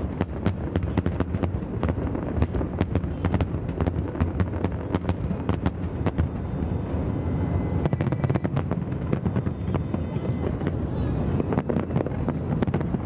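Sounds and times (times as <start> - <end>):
fireworks bangs and crackles: 0.0 - 13.0.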